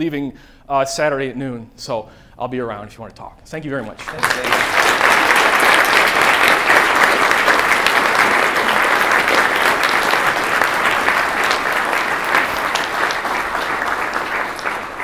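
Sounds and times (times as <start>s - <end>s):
audience applauding: 3.9s - 15.0s.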